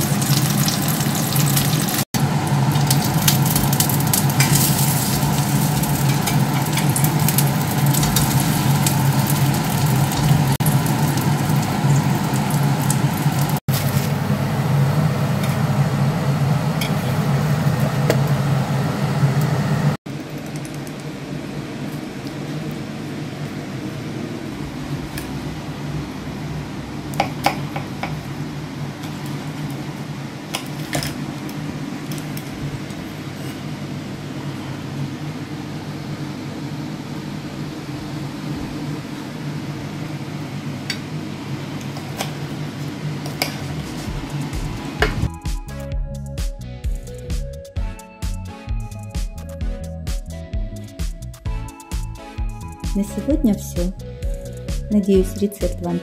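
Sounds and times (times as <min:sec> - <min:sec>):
pancakes sizzling in oil: 0:00.0 - 0:14.4.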